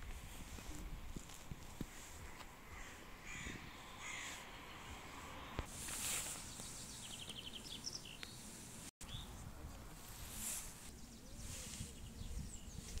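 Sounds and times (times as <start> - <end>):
crow cawing: 2.2 - 4.4
thin high bird chirps: 6.2 - 9.4.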